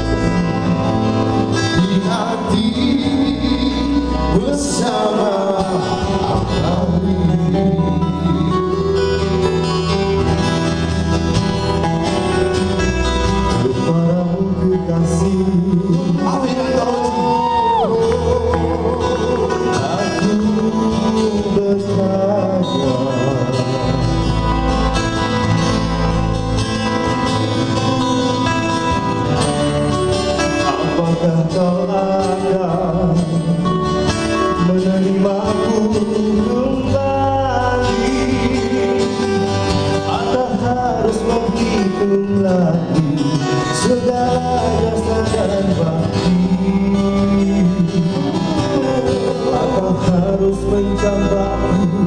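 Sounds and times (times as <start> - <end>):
men singing slow song: 0.0 - 8.9, 13.6 - 24.4, 30.6 - 33.7, 34.5 - 52.0
bass guitar: 0.0 - 52.0
strummed acoustic guitars: 0.0 - 52.0.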